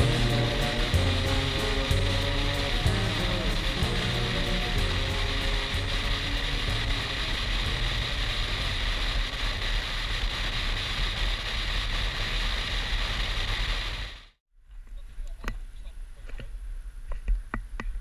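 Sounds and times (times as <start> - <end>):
wind rush: 0.0 - 14.3
motorcycle engine and road noise: 0.0 - 14.4.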